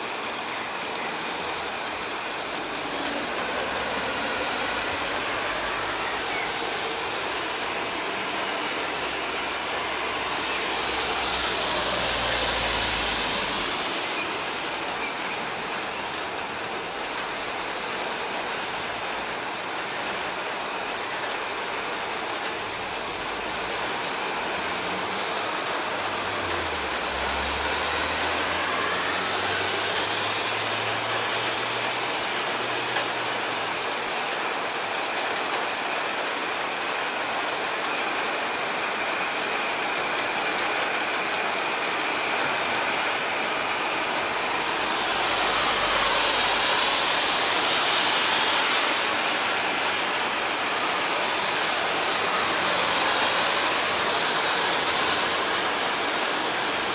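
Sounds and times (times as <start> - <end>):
heavy rain on roofs and street: 0.0 - 56.9
low hum: 43.6 - 56.8.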